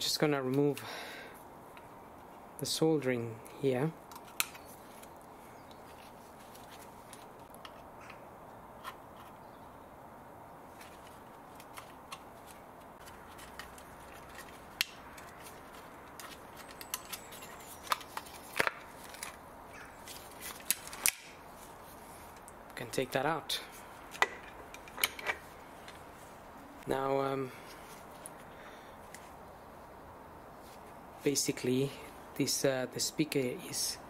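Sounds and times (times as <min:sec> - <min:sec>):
faint steady hiss: 0:17.8 - 0:34.0.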